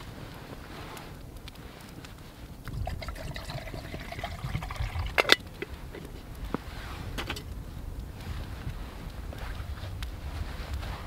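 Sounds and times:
water pouring into metal pot: 0:02.7 - 0:06.2.

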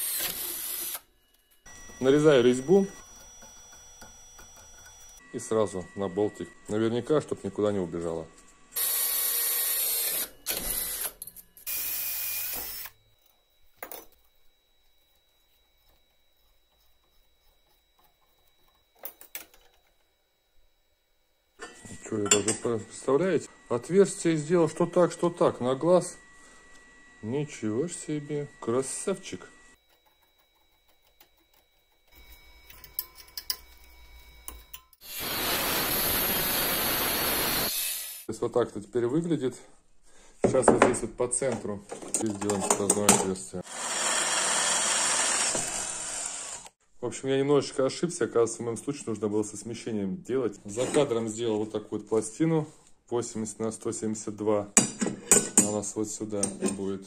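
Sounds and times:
cordless drill boring through steel: 0:00.0 - 0:01.1, 0:08.8 - 0:13.0, 0:35.0 - 0:38.3, 0:43.6 - 0:46.8.

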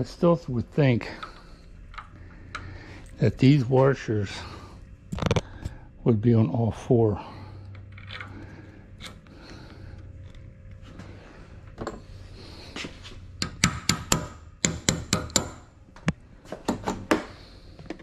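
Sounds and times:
faint low hum: 0:00.0 - 0:18.0.

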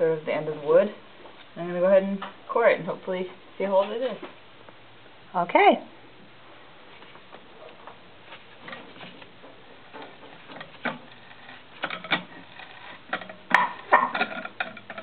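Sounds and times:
borer squeaking in wooden beam: 0:10.0 - 0:15.0.

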